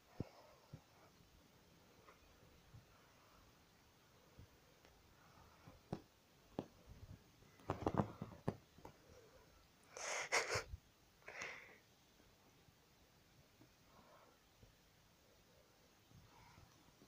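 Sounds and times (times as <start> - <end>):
short breathy bursts: 9.9 - 11.8.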